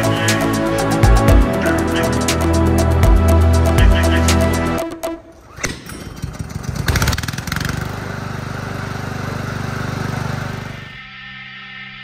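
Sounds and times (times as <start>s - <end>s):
lawn mower engine starting: 5.2s - 10.9s.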